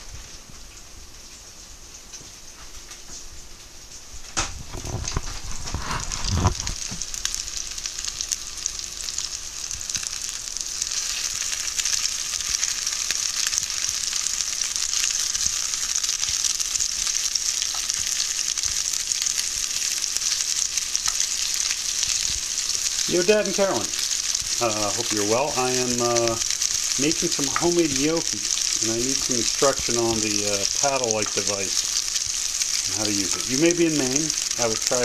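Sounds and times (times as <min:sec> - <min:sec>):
meatballs sizzling in oil: 0:00.0 - 0:35.0.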